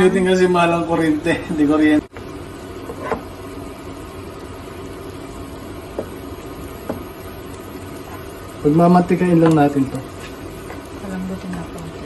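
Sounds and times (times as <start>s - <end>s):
meat hissing in a frying pan: 0.0s - 12.0s
spatula knocking on pan: 6.8s - 7.1s.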